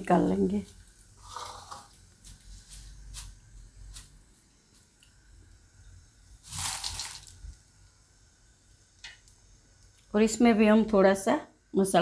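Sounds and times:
fried flakes rustling into bowl: 0.3s - 5.2s, 6.3s - 8.0s.

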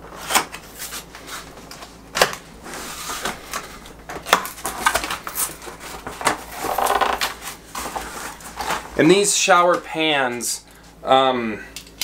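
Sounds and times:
cardboard packaging scraping and crinkling: 2.6s - 3.8s, 4.5s - 9.0s.

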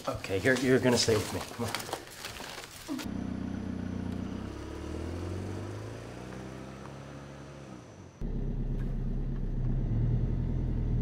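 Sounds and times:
car engine driving off: 2.9s - 11.0s.

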